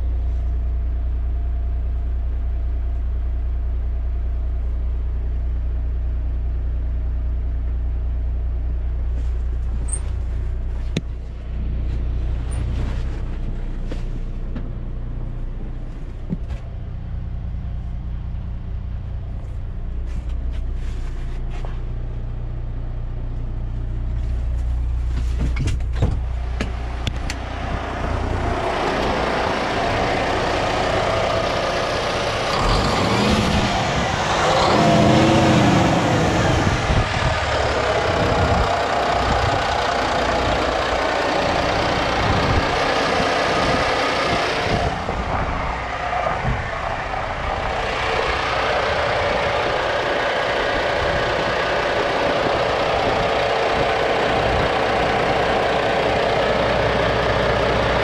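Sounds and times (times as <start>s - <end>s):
diesel truck engine idling: 0.0s - 58.0s.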